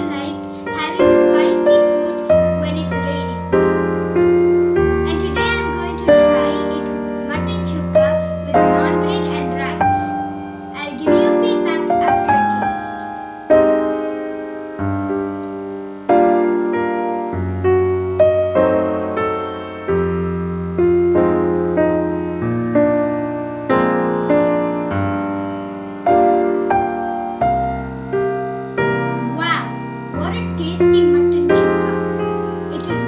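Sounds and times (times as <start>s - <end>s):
soft piano music: 0.0s - 33.0s.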